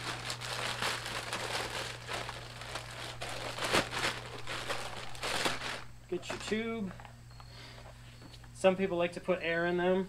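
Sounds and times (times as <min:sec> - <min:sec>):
plastic bag rustling and crinkling: 0:00.0 - 0:06.7.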